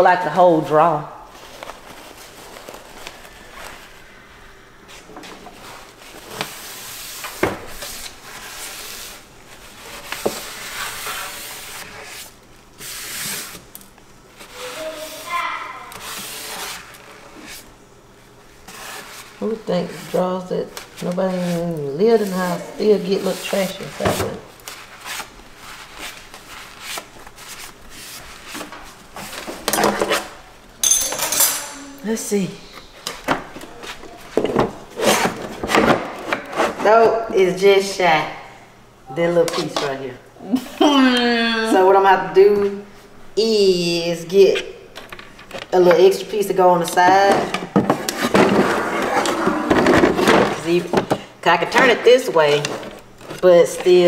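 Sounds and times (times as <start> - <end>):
paper towel rubbing on wood: 7.8 - 13.6, 14.4 - 17.6.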